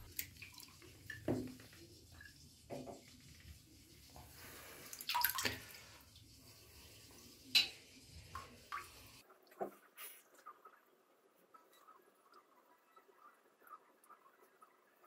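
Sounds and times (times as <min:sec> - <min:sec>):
water splashing: 0:00.0 - 0:02.4, 0:04.5 - 0:06.1
bathtub water draining: 0:00.0 - 0:09.6.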